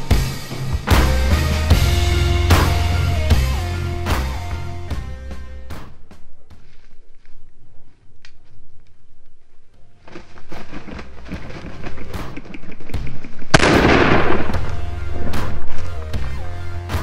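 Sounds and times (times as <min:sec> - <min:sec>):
background music: 0:00.0 - 0:06.8, 0:09.8 - 0:17.0
shotgun shot: 0:13.5 - 0:15.7.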